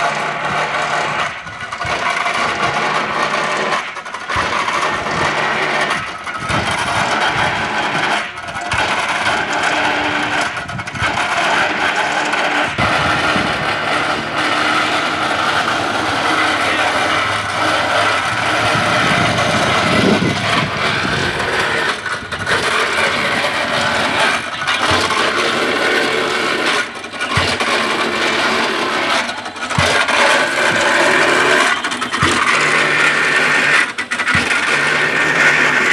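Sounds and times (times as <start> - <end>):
boring rig motor and winch: 0.0 - 35.9
tamping weight thudding: 0.5 - 35.9.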